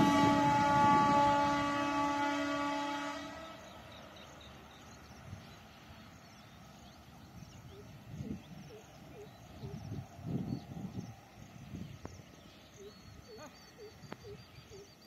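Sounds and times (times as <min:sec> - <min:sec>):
locomotive horn blast: 0:00.0 - 0:04.1.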